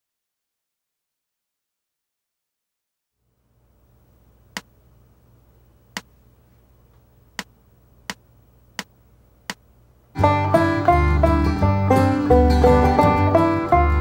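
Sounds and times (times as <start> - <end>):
faint low hum: 3.2 - 14.0.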